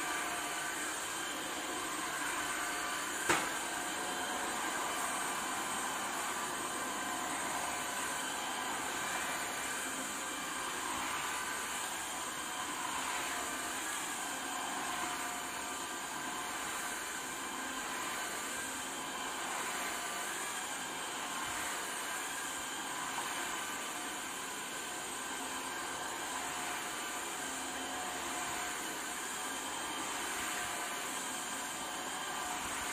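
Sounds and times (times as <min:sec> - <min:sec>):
vacuum cleaner running: 0:00.0 - 0:32.9.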